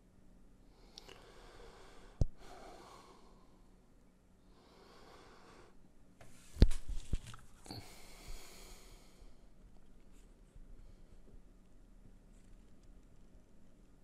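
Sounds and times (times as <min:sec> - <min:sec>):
breathing close to microphone: 0:00.7 - 0:03.7, 0:04.5 - 0:05.8, 0:07.6 - 0:09.6.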